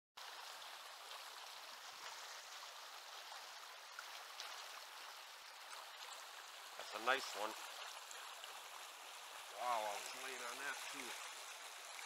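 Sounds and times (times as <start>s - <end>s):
water rushing over rocks: 0.2s - 12.0s.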